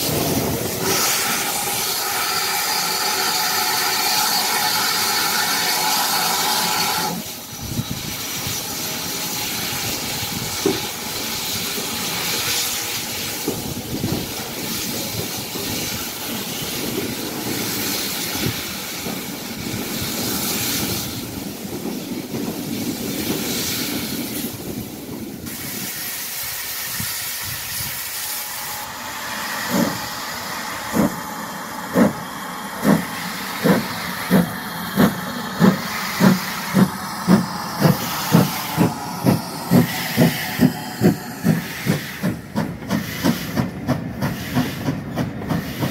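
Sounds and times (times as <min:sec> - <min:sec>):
steam hissing: 0:00.0 - 0:45.9
steam train rumble: 0:00.0 - 0:45.9
track clatter: 0:09.2 - 0:25.6, 0:29.6 - 0:45.9.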